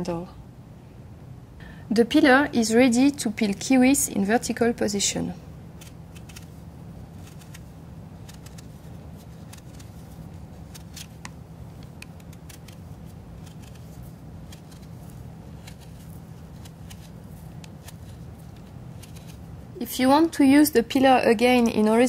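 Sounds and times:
steady low hum: 0.0s - 22.0s
peeler scraping fruit skin: 5.7s - 19.6s.

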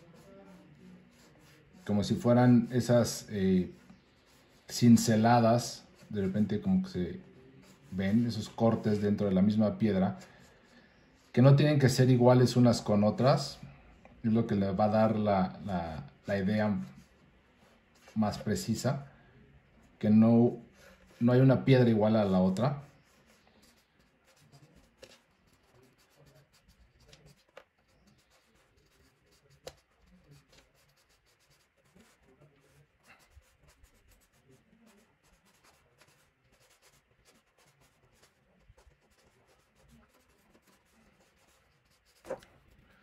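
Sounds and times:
marker scratching on paper: 0.0s - 6.6s, 7.2s - 9.2s, 20.9s - 43.0s.

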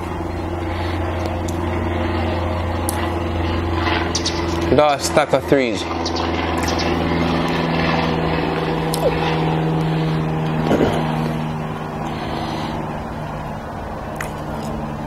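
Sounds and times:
low mechanical hum: 0.0s - 15.0s
eating clicks and smacks: 14.2s - 14.8s.

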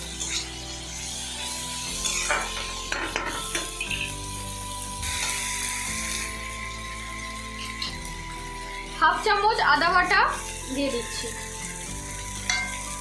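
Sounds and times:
masala sizzling in oil: 0.0s - 13.0s
soft background music: 0.0s - 13.0s
spatula scraping pan: 1.9s - 4.1s.

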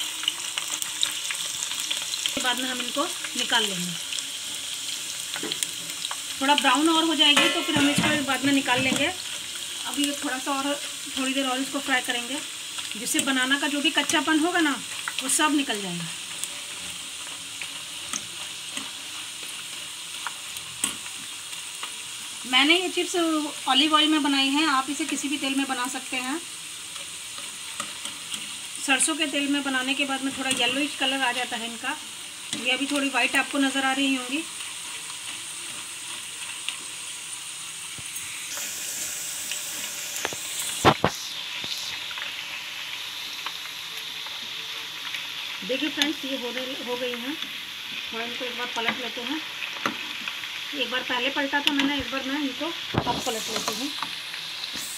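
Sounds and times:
chips deep-frying in oil: 0.0s - 54.9s
spoon knocking against pan: 7.4s - 9.0s
metal tongs clicking on pan: 30.4s - 30.8s, 51.6s - 52.0s.

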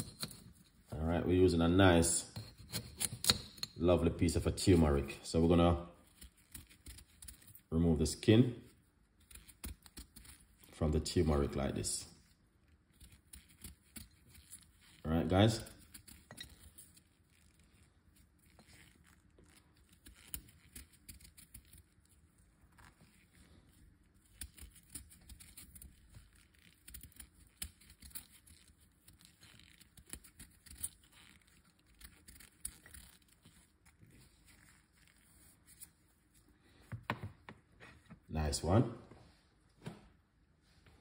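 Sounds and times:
knife scraping root skin: 0.0s - 0.8s, 2.3s - 3.8s, 4.6s - 7.7s, 9.2s - 36.5s.

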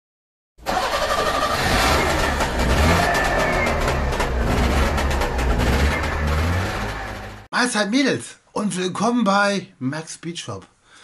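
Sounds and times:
car engine revving: 0.7s - 7.5s
exhaust crackles: 0.7s - 7.5s.

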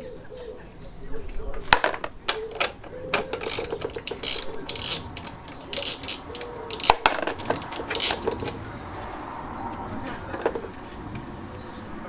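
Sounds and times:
ratchet wrench clicking: 3.2s - 8.6s.

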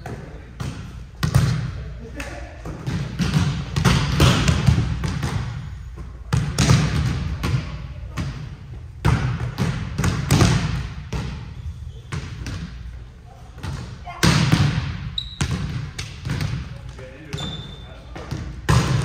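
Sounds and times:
volleyball slaps and bounces: 0.0s - 11.5s, 12.1s - 12.8s, 13.5s - 19.0s.

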